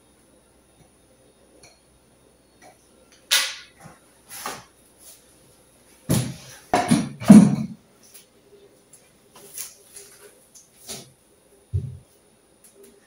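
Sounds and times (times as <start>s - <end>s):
chair knocks and bumps: 6.1s - 7.8s, 11.7s - 12.0s.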